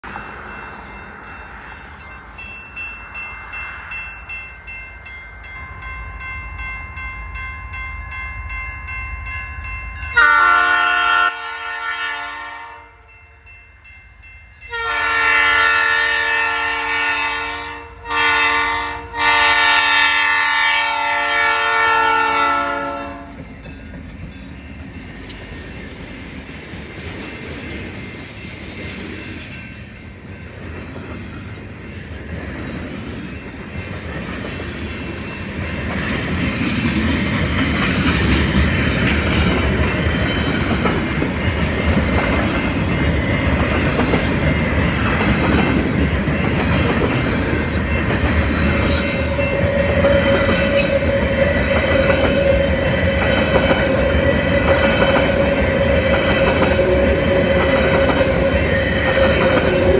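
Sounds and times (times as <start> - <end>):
railroad crossing bell ringing: 0.0 - 59.9
train wheels rumbling: 0.0 - 59.9
locomotive air horn: 10.1 - 13.1, 14.7 - 23.4.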